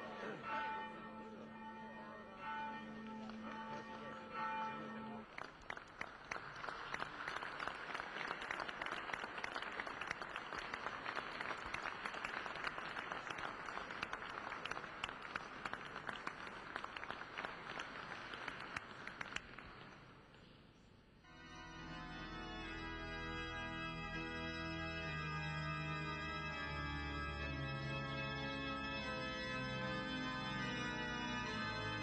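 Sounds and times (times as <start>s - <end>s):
crowd applauding: 3.0s - 20.3s.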